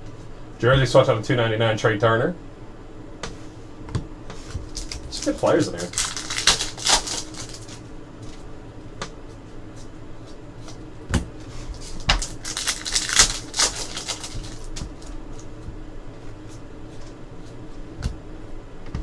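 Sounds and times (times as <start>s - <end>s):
card pack wrappers crinkling: 4.6s - 7.8s, 11.7s - 15.4s.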